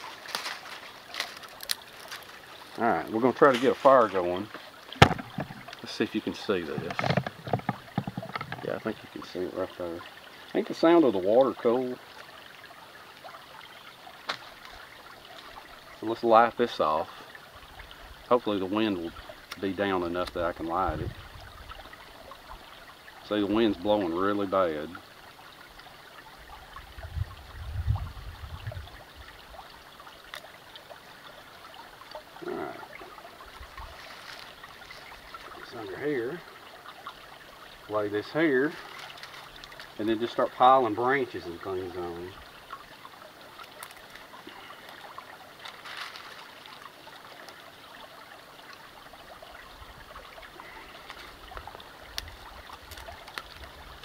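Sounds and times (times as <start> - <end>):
twigs clicking when handled: 0.0 - 2.8, 33.9 - 35.6, 38.8 - 40.0, 43.6 - 45.0, 45.6 - 47.6, 51.0 - 54.0
creek trickling: 0.0 - 54.0
wind buffeting microphone: 20.8 - 21.7, 26.9 - 29.0.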